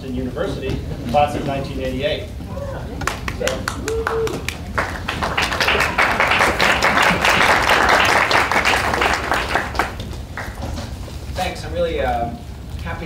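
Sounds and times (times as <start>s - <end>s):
audience applauding: 3.0s - 10.9s.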